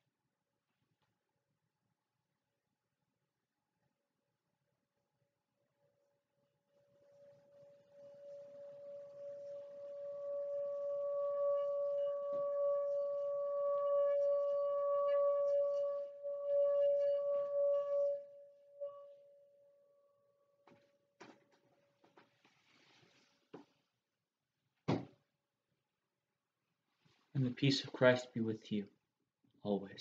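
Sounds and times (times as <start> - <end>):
singing bowl ringing: 6.8 - 20.4.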